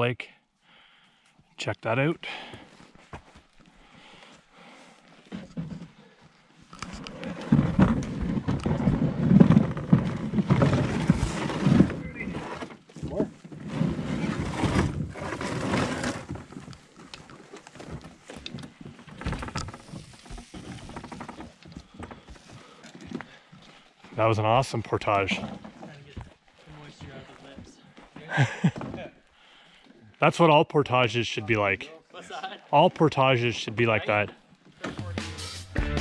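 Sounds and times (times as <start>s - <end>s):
canoe hull scraping over rocks: 6.9s - 27.7s.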